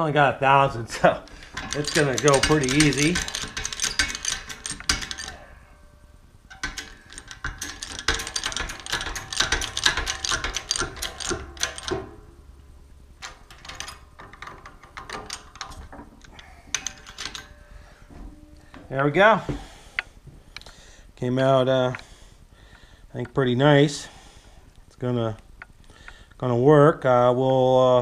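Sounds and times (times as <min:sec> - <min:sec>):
press clicking and ratcheting: 0:00.6 - 0:17.9.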